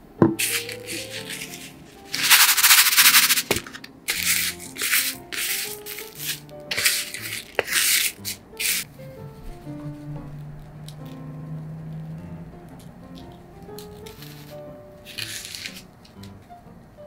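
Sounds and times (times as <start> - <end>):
soft piano music: 0.0 - 17.0
breadcrumbs rustling and crunching: 0.4 - 8.9, 13.8 - 16.2.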